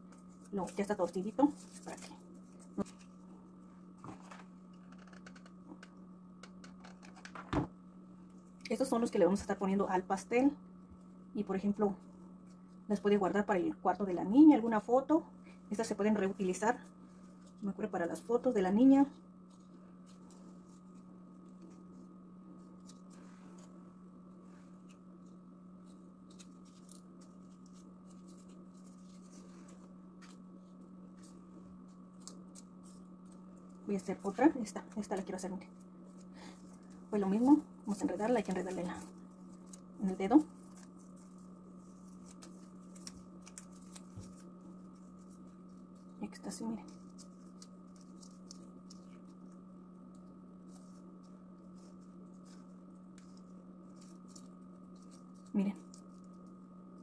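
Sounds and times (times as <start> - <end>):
steady low hum: 0.0 - 57.0
paper rustling and clicking: 24.8 - 30.4, 31.1 - 57.0.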